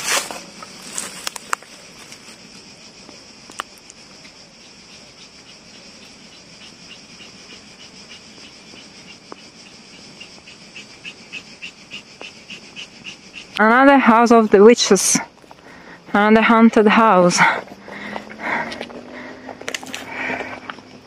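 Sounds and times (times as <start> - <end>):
footsteps on dry leaves: 0.0 - 2.4
insects chirping: 0.0 - 21.0.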